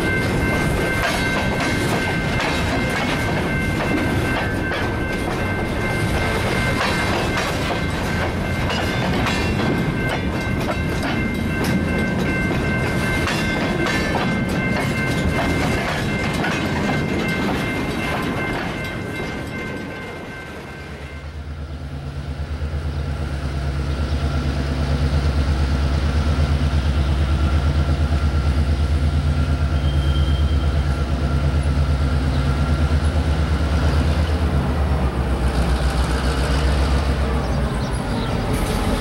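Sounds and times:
diesel locomotive engine drone: 0.0s - 39.0s
faint wheel squeal: 29.8s - 30.9s.

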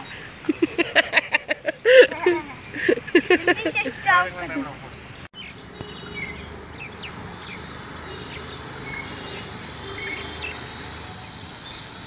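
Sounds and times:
bird chirps: 5.2s - 12.0s
toy drone buzzing: 6.8s - 12.0s.

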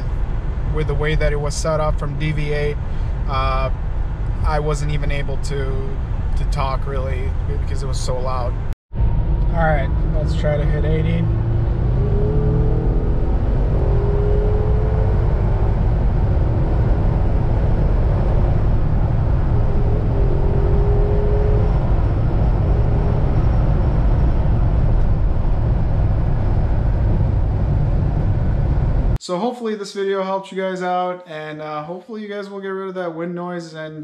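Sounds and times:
in-cabin road noise rumble: 0.0s - 29.2s
faint rising tone: 8.4s - 29.2s.

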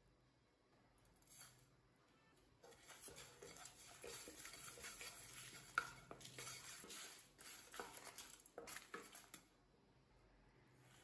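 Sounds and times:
spatula scraping seeds in pan: 2.6s - 9.4s
spatula tapping: 2.6s - 9.4s.

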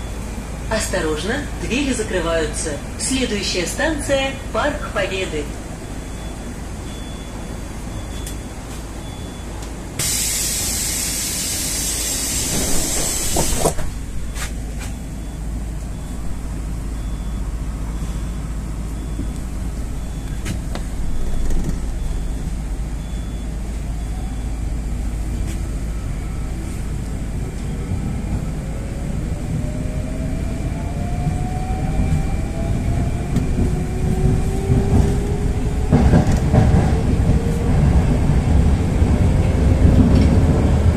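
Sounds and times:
compressed air hissing: 10.0s - 13.8s
train motors whining: 10.0s - 15.0s.

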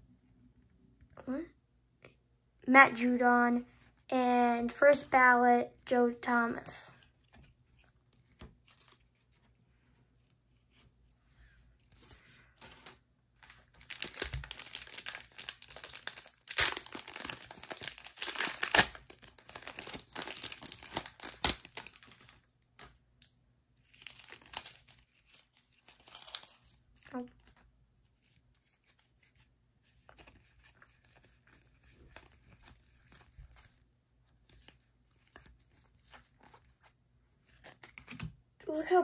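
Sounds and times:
foil wrapper tearing and crinkling: 13.4s - 22.4s, 23.9s - 27.3s
cards being handled: 28.2s - 33.8s.

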